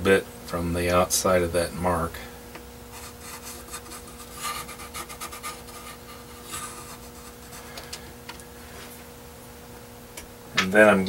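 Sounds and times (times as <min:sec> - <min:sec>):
pencil scratching on metal sheet: 0:03.0 - 0:07.7.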